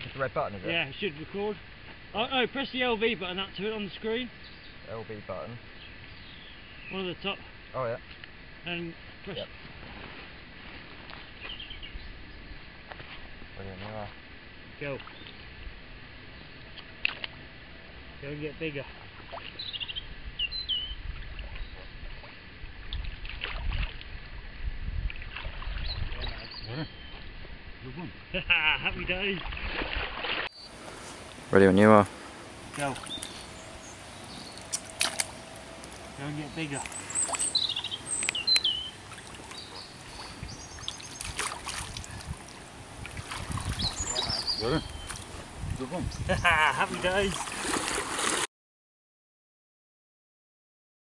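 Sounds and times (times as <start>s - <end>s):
water sloshing and splashing: 18.9s - 19.7s, 21.1s - 27.6s, 29.2s - 31.5s, 32.1s - 45.9s, 46.8s - 48.5s
wind rumble on microphone: 19.6s - 30.3s, 39.6s - 47.5s.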